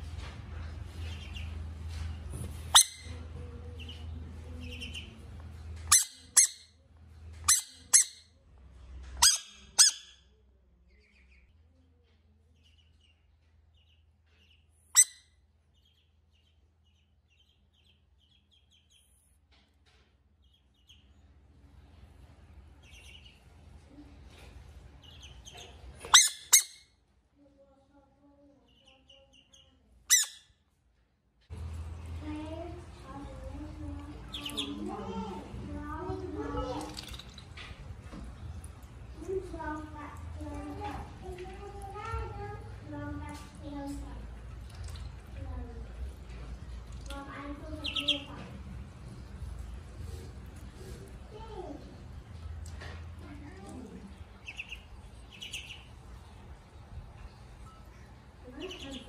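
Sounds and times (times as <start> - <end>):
ducklings peeping: 0.7 - 6.6, 10.9 - 11.6, 12.5 - 19.2, 20.4 - 21.2, 22.7 - 23.6, 25.0 - 26.8, 28.7 - 30.4, 33.1 - 37.2, 47.1 - 48.4, 54.1 - 56.4, 57.3 - 59.0
frog squeaky calls: 2.7 - 3.1, 5.9 - 6.7, 7.5 - 8.2, 9.2 - 10.2, 26.1 - 26.8, 30.1 - 30.5.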